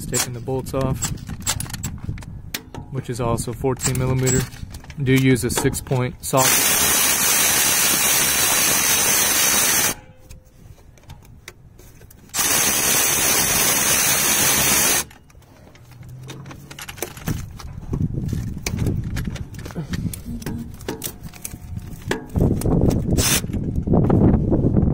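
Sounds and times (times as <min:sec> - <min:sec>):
tool and socket clicks and knocks: 0:00.1 - 0:02.9
power ratchet whirring: 0:06.4 - 0:10.0, 0:12.3 - 0:15.2, 0:22.6 - 0:23.6.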